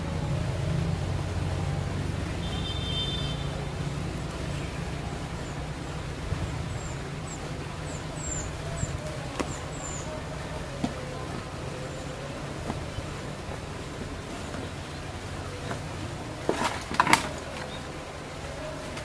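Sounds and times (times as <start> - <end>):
distant road traffic rumble: 0.0 - 19.0
small bird chirping: 6.3 - 11.1.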